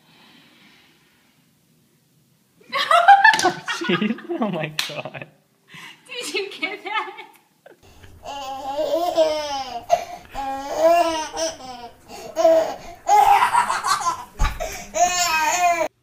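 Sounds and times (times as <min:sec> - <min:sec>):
toddler laughing: 0:06.9 - 0:15.9.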